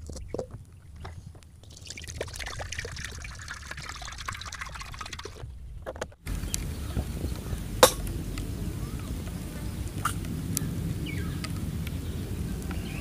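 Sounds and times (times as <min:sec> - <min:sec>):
water pouring into metal pan: 0:01.6 - 0:05.4.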